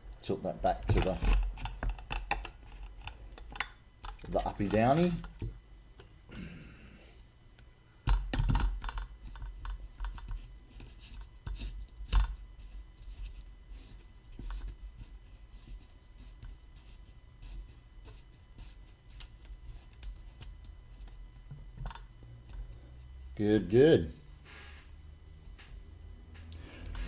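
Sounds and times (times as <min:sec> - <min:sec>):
plastic clicks and knocks: 0:08.1 - 0:10.3.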